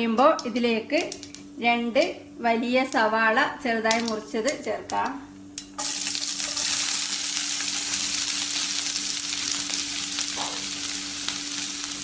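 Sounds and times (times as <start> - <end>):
onions sizzling in hot oil: 5.8 - 12.0.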